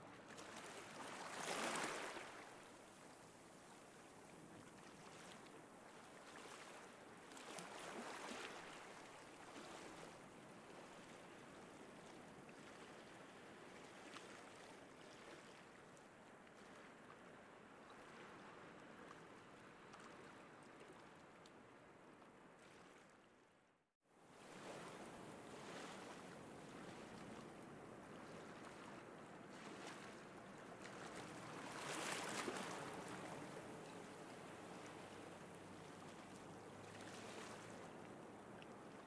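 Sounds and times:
surf washing onto a beach: 0:30.2 - 0:38.6.

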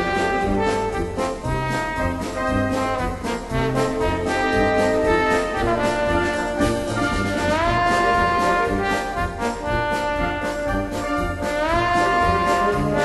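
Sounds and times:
brass band music: 0:00.0 - 0:13.0.

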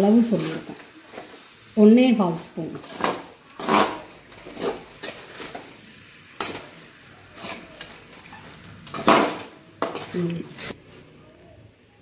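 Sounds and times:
spoon scraping a metal pan: 0:02.7 - 0:10.8.

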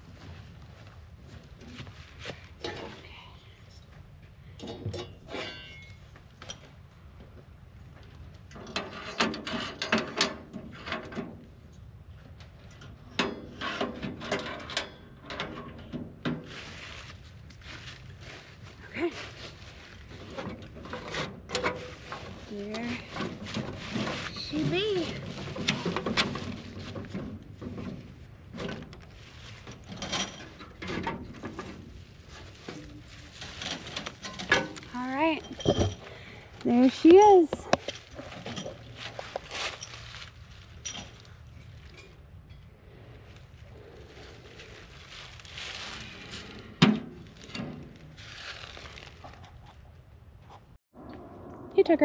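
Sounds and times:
rustling: 0:16.4 - 0:50.8.

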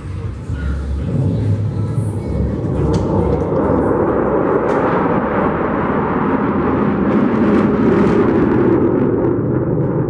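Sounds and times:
jet engines roaring: 0:00.0 - 0:10.0.

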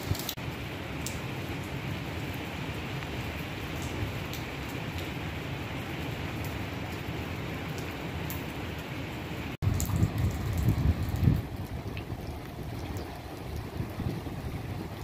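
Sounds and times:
raindrop ticks: 0:00.0 - 0:05.2, 0:07.7 - 0:08.9, 0:09.6 - 0:15.0
steady rain hiss: 0:00.0 - 0:15.0.

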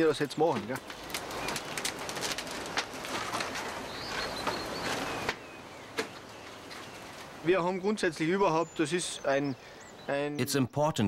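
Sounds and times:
wood fire crackling: 0:00.0 - 0:10.1
bird chirping: 0:03.6 - 0:11.0.

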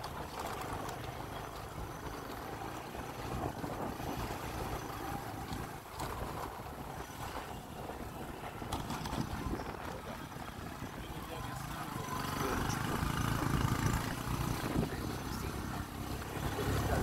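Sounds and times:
motorbike engine running: 0:00.0 - 0:17.0
wind noise on microphone: 0:02.9 - 0:11.5, 0:12.8 - 0:15.2.

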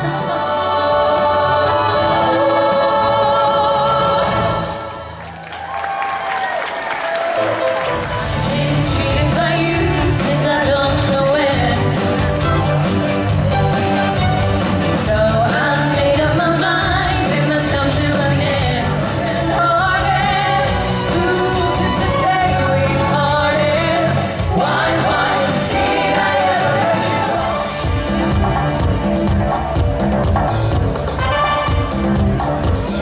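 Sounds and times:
amplified pop backing track: 0:00.0 - 0:05.0, 0:07.4 - 0:33.0
women singing into microphones: 0:00.0 - 0:05.0, 0:08.2 - 0:12.2, 0:15.0 - 0:27.6.

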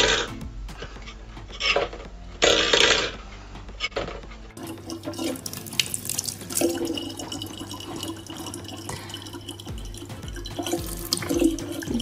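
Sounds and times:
water trickling into plastic bottle: 0:04.6 - 0:12.0.

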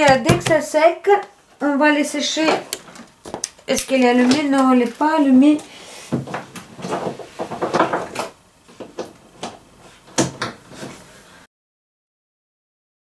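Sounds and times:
objects knocking on a desk: 0:00.0 - 0:00.6.

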